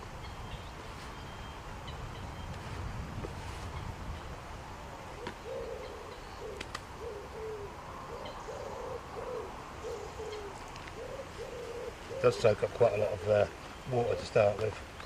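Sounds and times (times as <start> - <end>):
pigeon cooing: 5.2 - 13.3.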